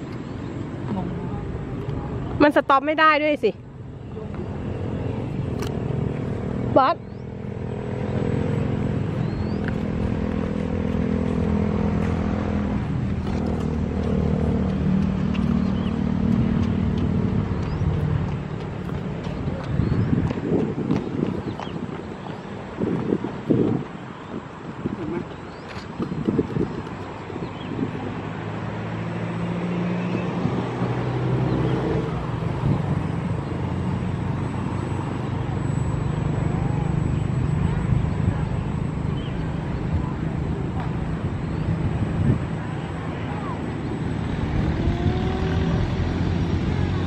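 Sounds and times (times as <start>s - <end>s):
model plane motor and propeller: 42.8s - 47.0s.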